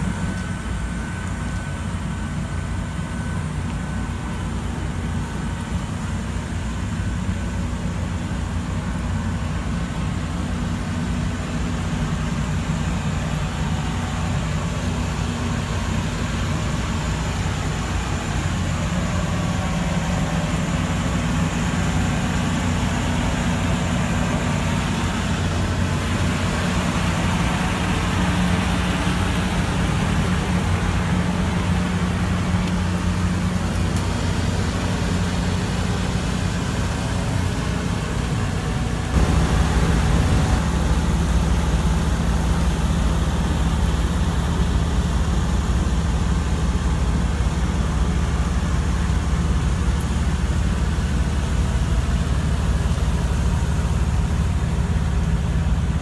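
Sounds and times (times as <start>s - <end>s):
low mechanical hum: 0.0s - 56.0s
background rush: 17.8s - 45.0s.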